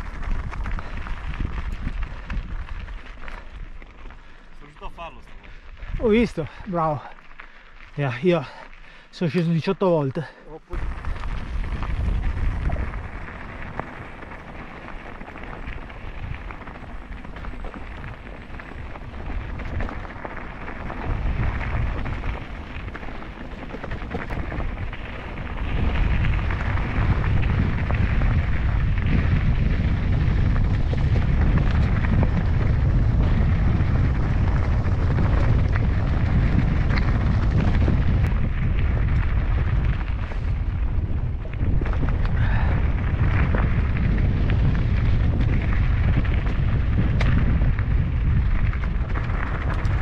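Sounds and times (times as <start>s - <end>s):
wind buffeting microphone: 0.0s - 9.0s, 10.7s - 50.0s
bike rolling on trail: 0.0s - 50.0s.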